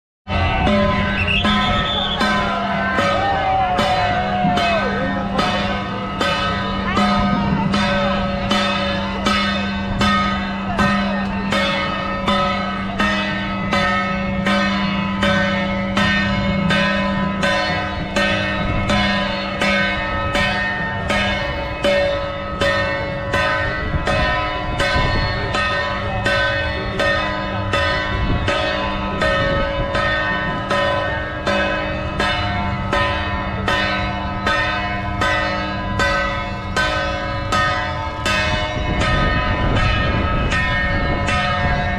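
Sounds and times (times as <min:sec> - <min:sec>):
bell-like metal percussion: 0:00.3 - 0:41.9
crowd noise: 0:00.3 - 0:41.9.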